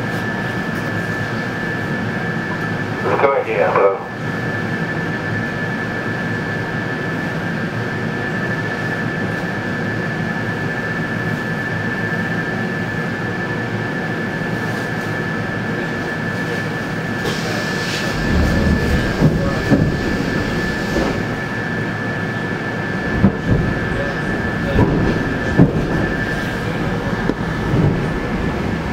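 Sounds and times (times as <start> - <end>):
electric train equipment humming: 8.1 - 28.9.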